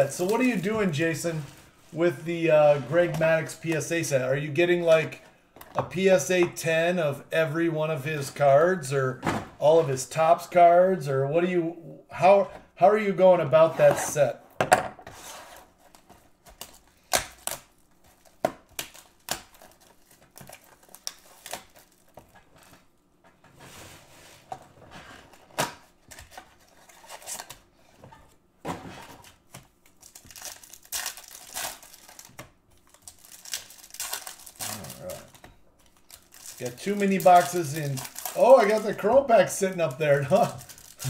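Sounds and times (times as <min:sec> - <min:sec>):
foil wrappers crinkling: 0:00.0 - 0:02.0, 0:15.9 - 0:22.8, 0:29.2 - 0:41.0.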